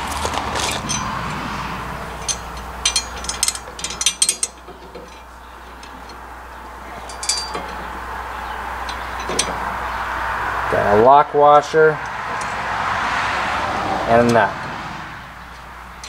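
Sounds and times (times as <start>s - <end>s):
bolts clinking against metal bracket: 0.0s - 10.4s, 11.5s - 12.7s, 15.3s - 16.0s.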